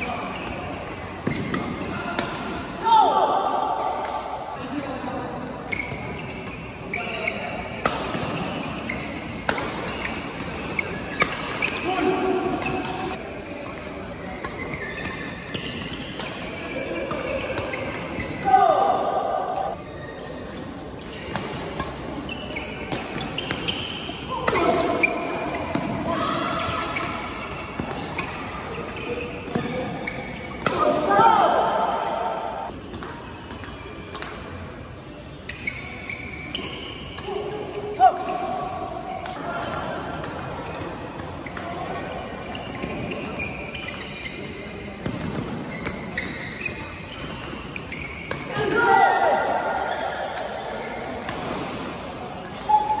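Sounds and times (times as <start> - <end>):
shoes squeaking on court: 0.0 - 2.0, 5.6 - 18.5, 19.5 - 34.7, 35.3 - 39.4, 40.3 - 53.0
racket hitting shuttlecock: 7.8 - 13.2.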